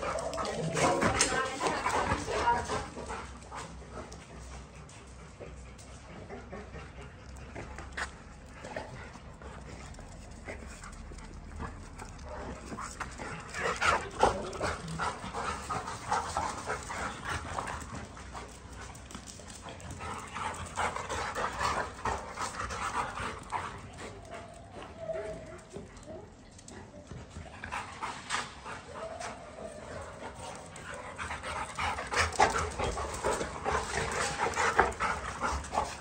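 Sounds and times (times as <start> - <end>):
dogs panting: 0.0 - 36.0.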